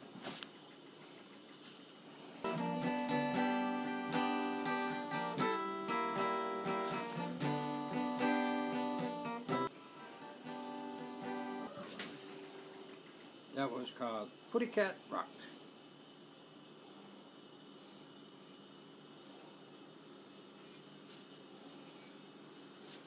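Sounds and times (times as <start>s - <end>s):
acoustic guitar playing: 2.4s - 12.9s.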